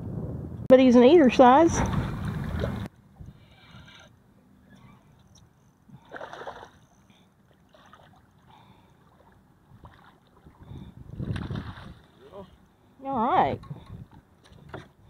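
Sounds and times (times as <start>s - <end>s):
water around boat: 0.6s - 15.0s
soft splashes: 1.7s - 2.9s, 6.0s - 6.9s, 7.5s - 12.6s.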